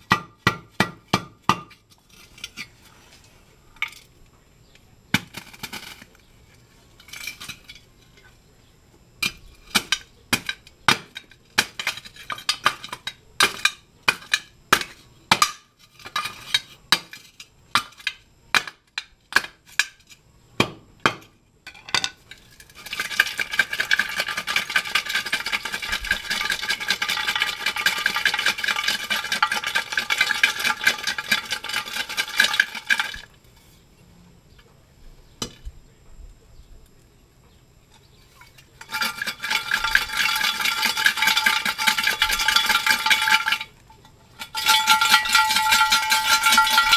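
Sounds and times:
steel bar clanking on metal: 44.4s - 46.9s.

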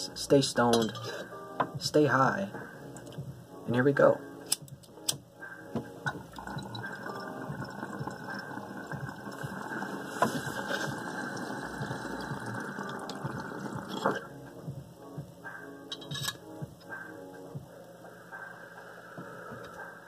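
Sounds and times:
water pipe bubbling: 6.0s - 14.4s.

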